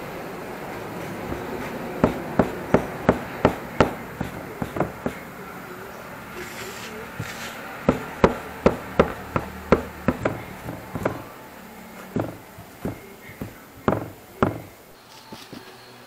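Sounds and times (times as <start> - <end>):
metal blade knocking on tile: 1.3 - 5.2, 7.9 - 11.2, 12.2 - 14.8.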